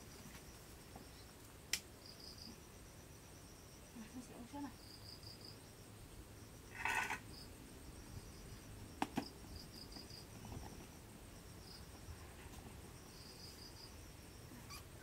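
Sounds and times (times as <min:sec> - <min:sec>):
faint insect chirping: 0:00.0 - 0:15.0.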